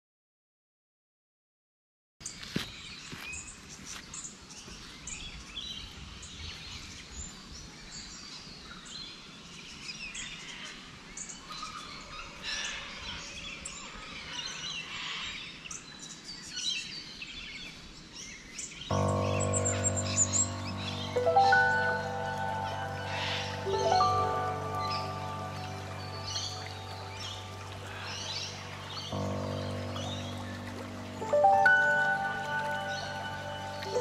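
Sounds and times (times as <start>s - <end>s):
background hiss: 18.9s - 34.0s
birds calling and chirping: 18.9s - 34.0s
sustained music notes: 18.9s - 34.0s.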